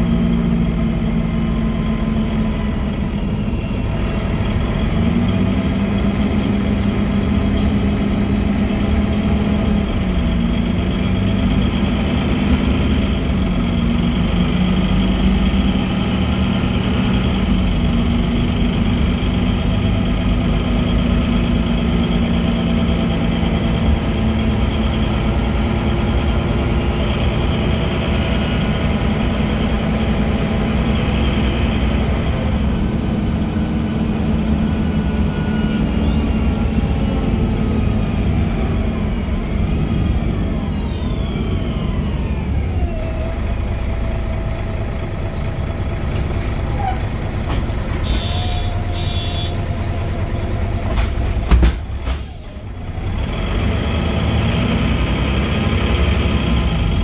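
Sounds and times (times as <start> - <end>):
bus diesel engine running: 0.0 - 57.0
engine whine: 0.0 - 57.0.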